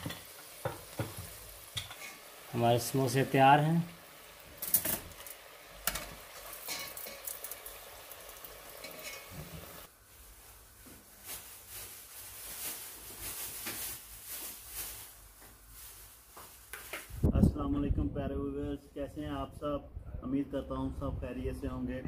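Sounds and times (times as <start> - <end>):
food deep-frying in oil: 0.0 - 9.9.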